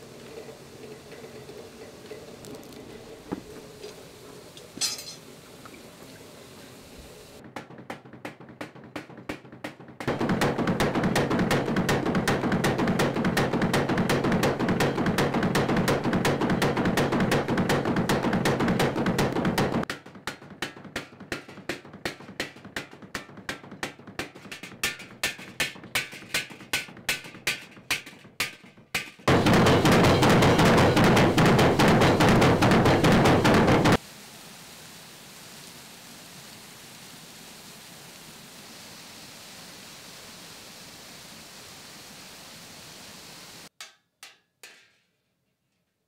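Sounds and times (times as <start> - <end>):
trip hammer pounding iron: 7.4 - 34.0
rushing water: 34.0 - 43.7.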